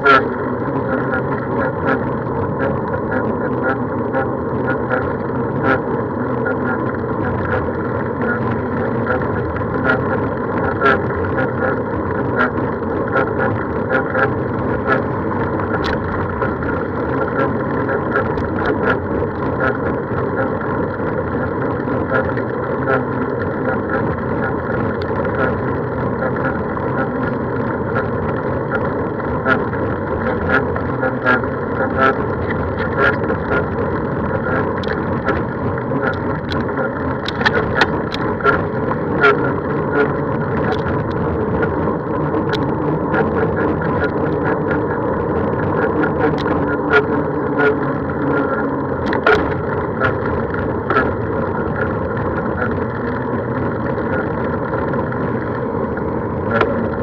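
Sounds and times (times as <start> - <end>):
vehicle hum: 0.0 - 57.0.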